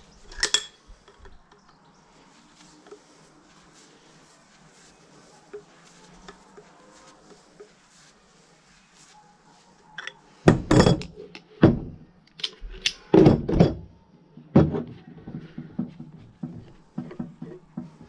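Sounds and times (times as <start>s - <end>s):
metal tools thunking on workbench: 10.0s - 11.2s.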